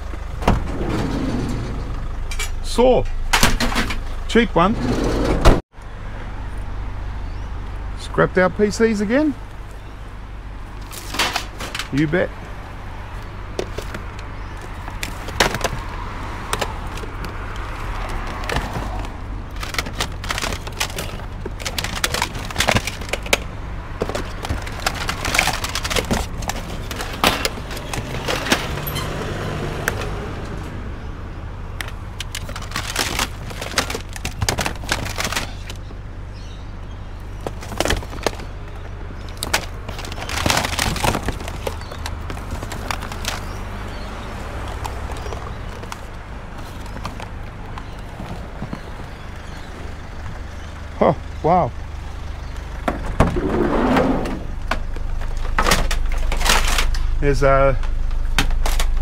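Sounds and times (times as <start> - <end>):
hard objects knocking and clattering: 13.5 - 28.8.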